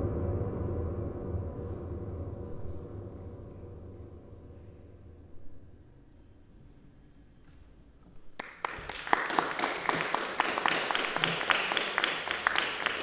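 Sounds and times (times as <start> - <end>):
audience applauding: 8.4 - 13.0.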